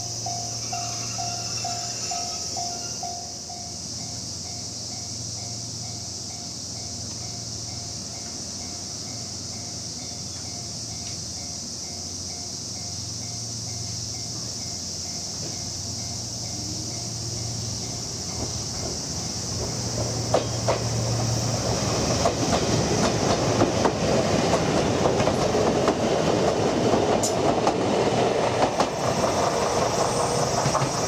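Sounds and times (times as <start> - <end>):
cicadas droning: 0.0 - 31.0
electric train humming: 0.0 - 31.0
level crossing warning bell: 0.2 - 18.1.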